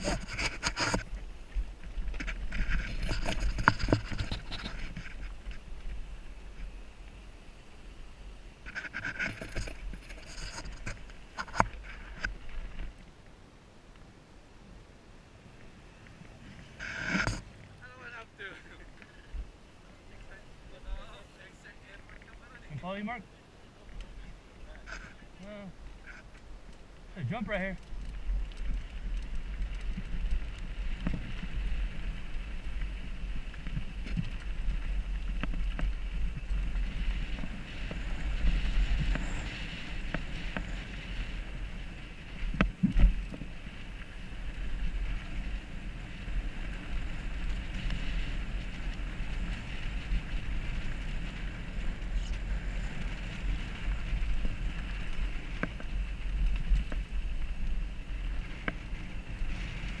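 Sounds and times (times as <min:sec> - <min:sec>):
bike tyre and frame rattle: 0:00.0 - 0:13.1, 0:23.8 - 1:00.0
wind rumble on microphone: 0:00.0 - 0:13.2, 0:23.8 - 1:00.0.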